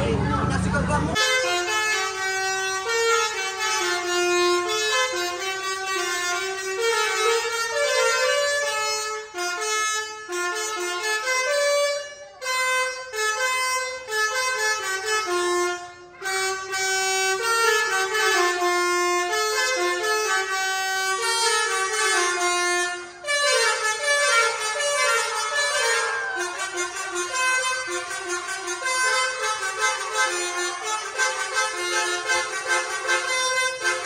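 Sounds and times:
multi-tone air horn tune: 1.1s - 34.0s.

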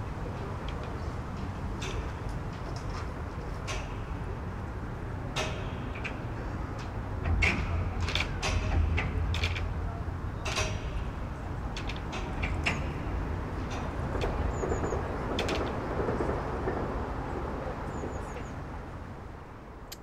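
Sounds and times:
clicks creaks and knocks: 5.3s - 16.9s.

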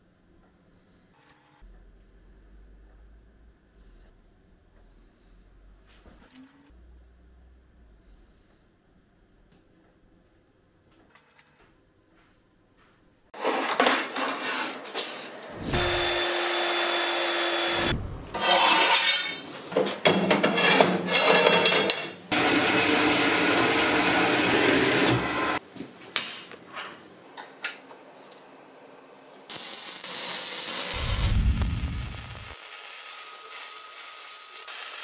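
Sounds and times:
metalworking power tool motor: 15.6s - 17.9s
hiss: 29.5s - 35.0s.

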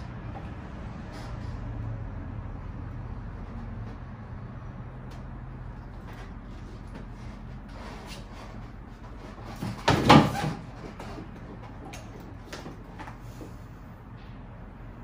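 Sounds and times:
dirt bike clattering thud: 9.4s - 10.9s.

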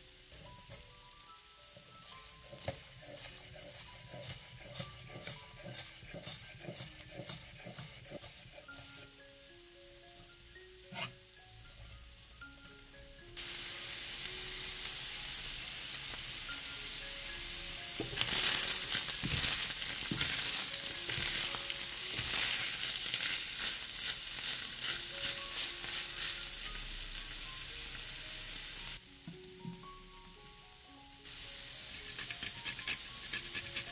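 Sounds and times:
stirring and scraping in pan: 1.8s - 9.1s, 10.9s - 11.2s, 18.0s - 26.6s, 31.8s - 33.9s
food frying in oil: 13.4s - 29.2s, 31.2s - 33.9s.

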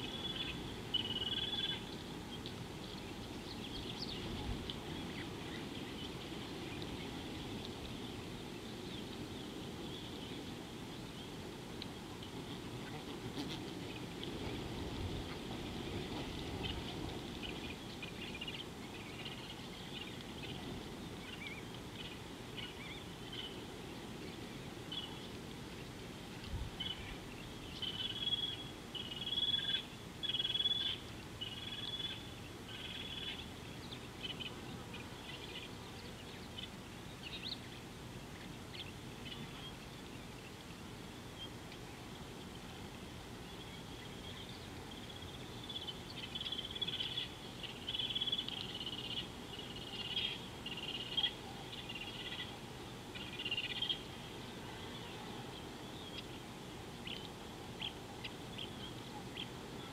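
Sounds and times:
wild birds calling: 0.0s - 26.1s, 26.7s - 59.9s
outdoor background noise: 0.0s - 59.9s.

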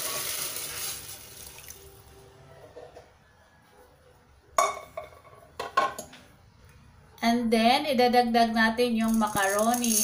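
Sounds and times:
broth pouring into a pot: 0.0s - 1.9s.

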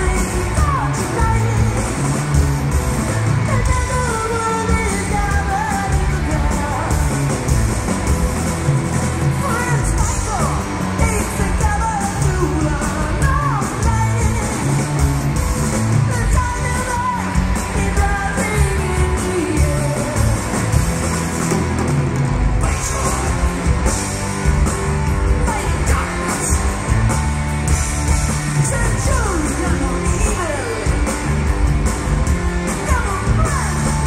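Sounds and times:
distorted electric guitar: 0.0s - 34.0s
drums: 0.0s - 34.0s
electric bass: 0.0s - 34.0s
man singing lead vocal: 9.3s - 14.8s, 22.6s - 23.8s, 25.4s - 26.8s, 28.6s - 31.2s.

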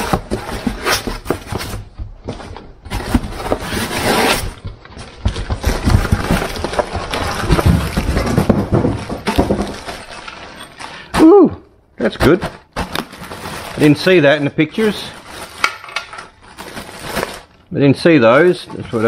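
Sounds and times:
packaging rustling and scraping: 0.0s - 11.1s, 12.0s - 19.0s
knocks and clatter of handled part: 4.7s - 10.9s.

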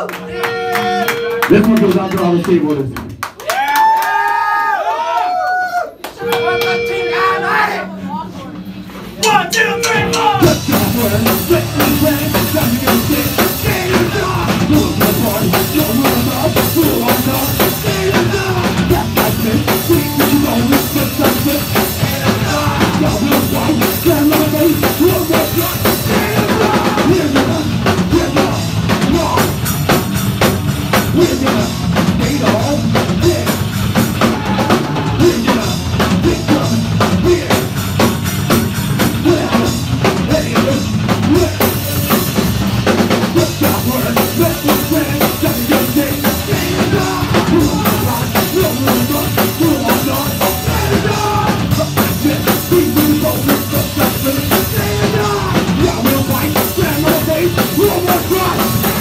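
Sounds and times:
punk band playing: 0.0s - 4.4s, 5.9s - 59.0s
drum kit: 5.8s - 59.0s
cymbals: 9.2s - 11.2s.

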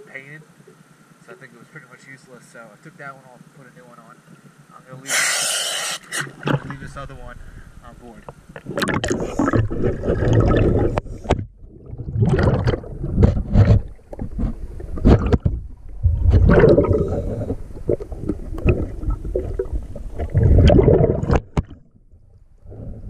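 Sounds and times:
underwater breath bubbling: 5.1s - 6.4s, 8.6s - 13.7s, 16.0s - 21.6s.

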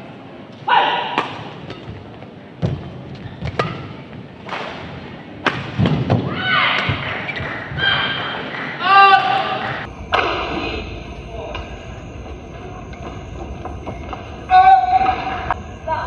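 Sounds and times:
racket striking shuttlecock: 1.0s - 7.5s
shoe soles squeaking: 1.6s - 4.4s
thudding footfalls on court: 1.8s - 8.0s.

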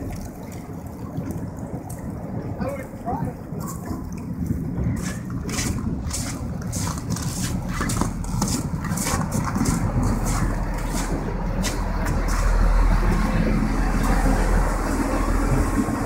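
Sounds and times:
boat engine rumbling: 0.0s - 16.0s
ice crackling and splashing: 3.5s - 13.2s.

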